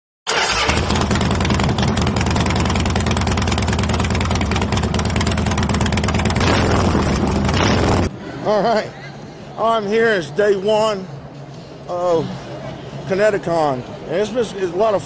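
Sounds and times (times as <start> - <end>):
motorcycle engine running: 0.6 - 8.1.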